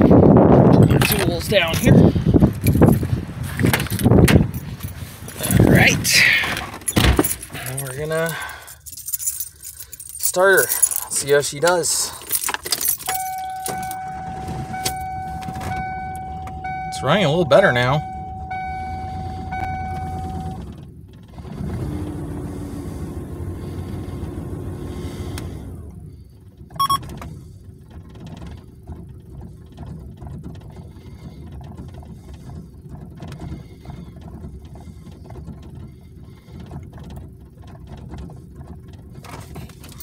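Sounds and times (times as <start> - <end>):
car engine idling: 0.0 - 40.0
steady tone: 13.2 - 20.6.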